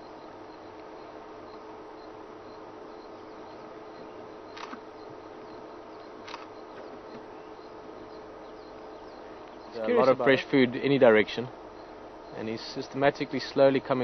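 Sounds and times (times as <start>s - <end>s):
steady low hum: 0.0s - 14.0s
faint high ticks: 4.5s - 4.8s, 5.4s - 7.3s
sharp clicks: 4.5s - 4.8s, 6.2s - 7.2s.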